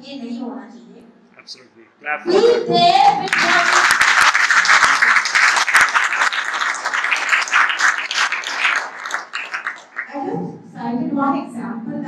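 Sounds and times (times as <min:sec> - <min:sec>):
audience applauding: 0:03.3 - 0:10.1.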